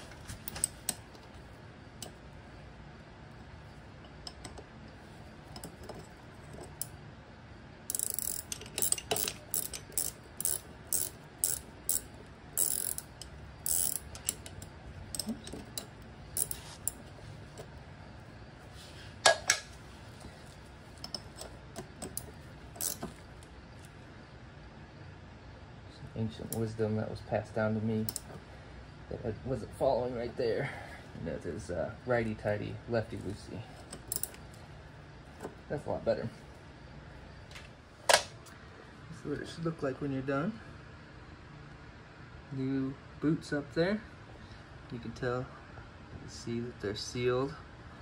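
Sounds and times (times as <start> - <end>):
ratchet wrench clicking: 7.9 - 17.6, 21.0 - 23.2, 28.0 - 28.3, 33.8 - 34.4.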